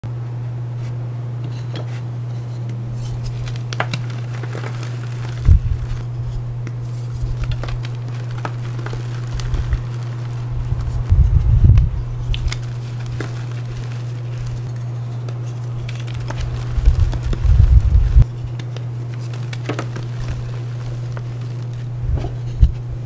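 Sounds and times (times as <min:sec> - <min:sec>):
steady low hum: 0:00.0 - 0:23.0
chalk crunching in hands: 0:03.0 - 0:11.1, 0:12.0 - 0:14.7, 0:15.4 - 0:21.9.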